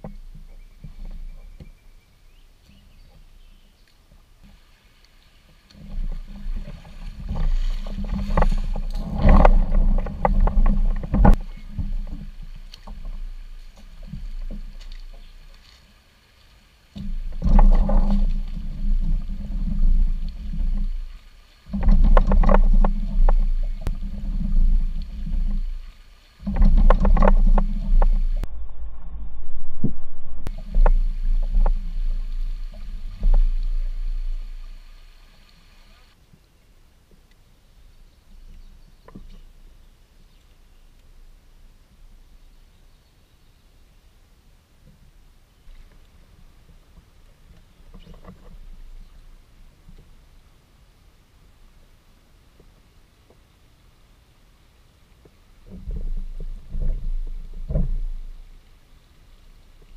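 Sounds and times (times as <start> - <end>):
plastic hull grinding over gravel: 5.8 - 14.7, 17.0 - 21.1, 21.7 - 28.5, 30.4 - 35.0.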